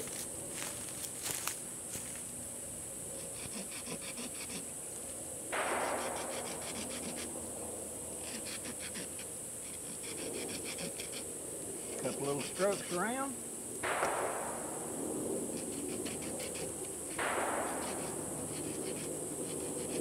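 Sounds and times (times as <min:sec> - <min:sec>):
saw blade rasping through sapling: 0:03.2 - 0:04.7, 0:05.9 - 0:07.3, 0:08.2 - 0:11.2, 0:11.9 - 0:13.1, 0:15.5 - 0:20.0.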